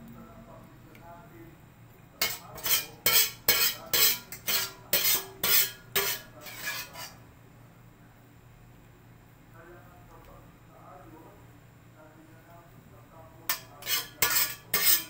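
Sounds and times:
spoon scraping a pan: 0:02.2 - 0:07.2, 0:13.5 - 0:15.0.

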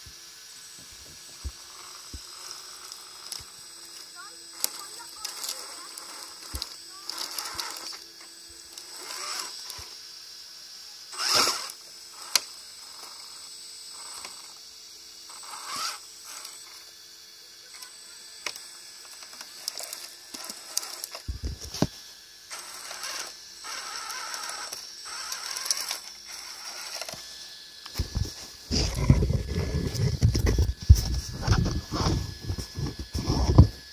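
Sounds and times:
small electric motor whirring: 0:00.0 - 0:33.9
tyres scraping on rock: 0:04.6 - 0:08.0, 0:27.9 - 0:33.8.

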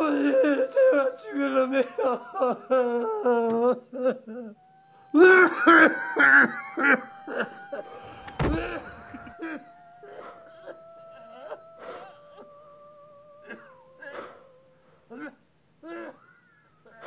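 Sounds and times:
man sobbing and gasping: 0:00.0 - 0:17.0
heavy low thump: 0:08.2 - 0:09.0.

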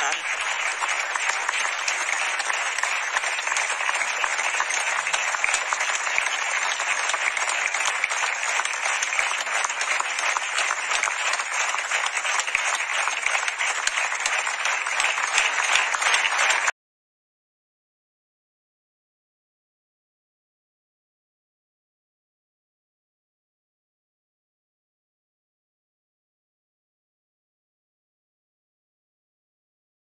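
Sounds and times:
audience applauding: 0:00.0 - 0:16.8.

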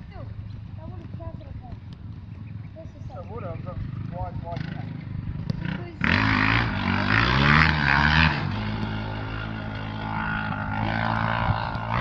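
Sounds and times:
engine running: 0:00.0 - 0:12.0.

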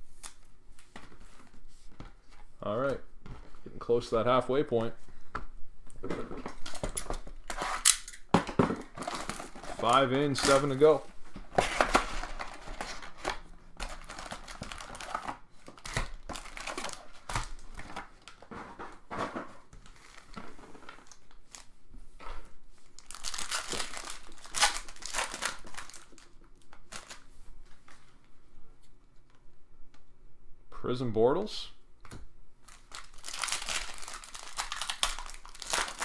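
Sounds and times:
plastic wrapping crinkling and tearing: 0:06.1 - 0:18.5, 0:19.8 - 0:21.7, 0:22.8 - 0:27.3, 0:32.6 - 0:36.0.

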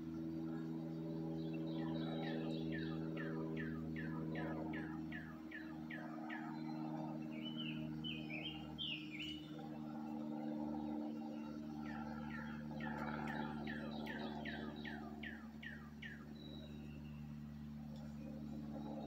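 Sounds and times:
steady low hum: 0:00.0 - 0:19.0
songbird whistling: 0:01.6 - 0:09.6, 0:12.3 - 0:17.2.

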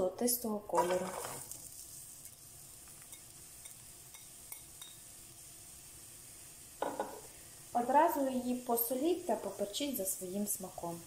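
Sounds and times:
onion sizzling in oil: 0:00.0 - 0:11.0
knock: 0:06.8 - 0:07.2.

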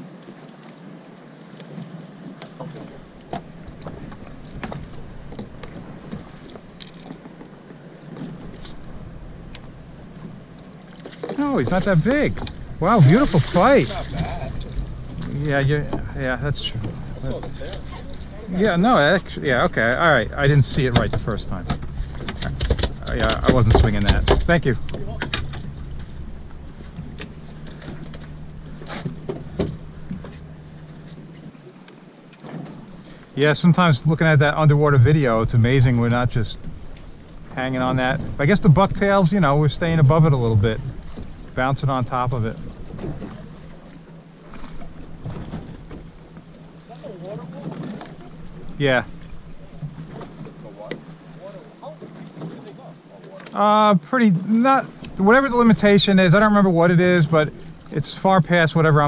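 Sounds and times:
fish flopping on boat deck: 0:01.6 - 0:20.0, 0:20.7 - 0:33.4, 0:42.5 - 0:53.6
fishing tackle clicks and knocks: 0:02.7 - 0:08.8
steady low hum: 0:03.0 - 0:52.0.

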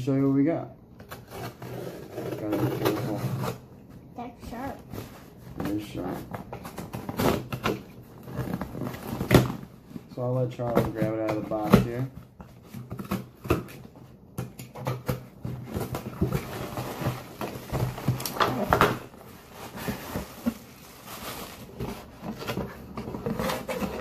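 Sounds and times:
knocks and scrapes: 0:10.6 - 0:24.0
packing rustling: 0:14.9 - 0:24.0.

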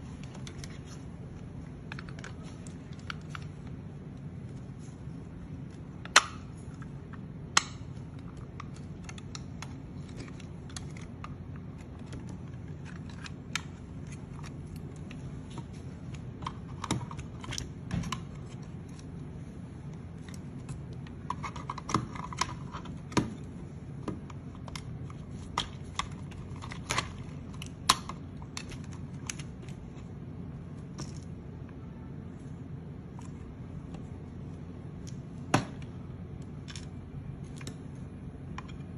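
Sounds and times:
plastic parts clicking and snapping: 0:01.8 - 0:03.8, 0:05.7 - 0:19.2, 0:20.2 - 0:30.1.

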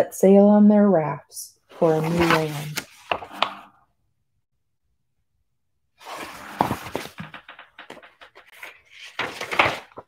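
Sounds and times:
book rustling near microphone: 0:01.7 - 0:03.7, 0:06.0 - 0:10.0.

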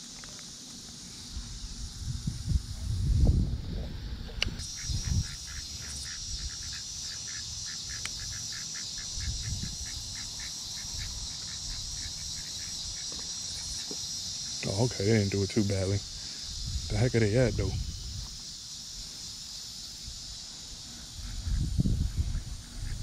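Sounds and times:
insect chorus buzzing: 0:00.0 - 0:23.0
rapid repeated chirping: 0:04.5 - 0:17.0.

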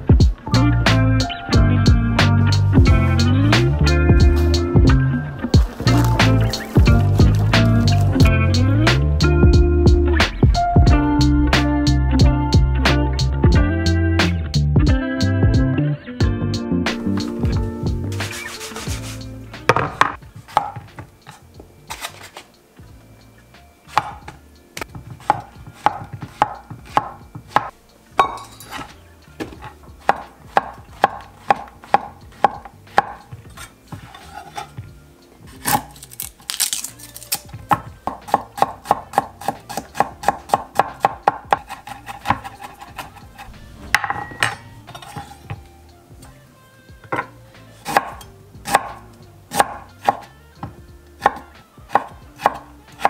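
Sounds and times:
knife chopping on cutting board: 0:18.2 - 0:22.4, 0:23.9 - 0:24.3, 0:25.2 - 0:34.7, 0:37.7 - 0:45.5, 0:47.1 - 0:50.2, 0:51.2 - 0:52.6.

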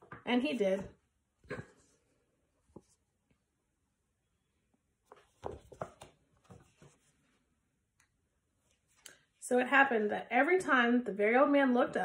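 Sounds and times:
paper pages rustling: 0:05.1 - 0:07.3.

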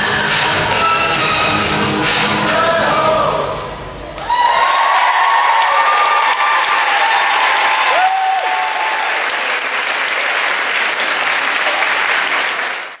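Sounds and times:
high whoops: 0:04.2 - 0:09.2
audience applauding and cheering: 0:04.2 - 0:13.0.

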